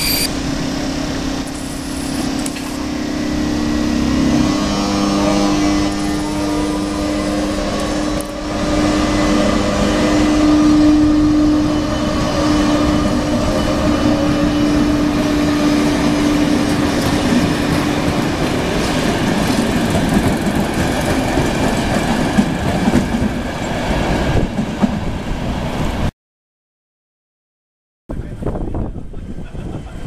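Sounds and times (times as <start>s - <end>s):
electric locomotive hum: 0.0s - 26.1s
train wheels rumbling on rail: 0.0s - 26.1s, 28.2s - 30.0s.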